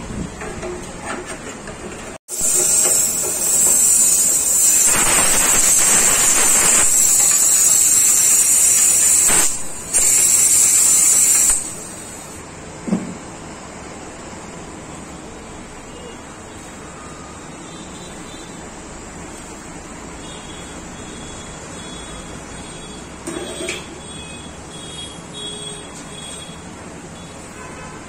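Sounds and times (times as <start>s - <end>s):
compressed air hissing into tank: 2.3s - 12.4s.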